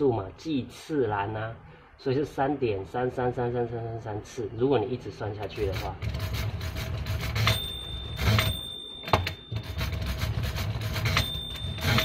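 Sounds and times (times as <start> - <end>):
calculator gears rasping: 5.5 - 12.0
sharp mechanical clacks: 5.5 - 12.0.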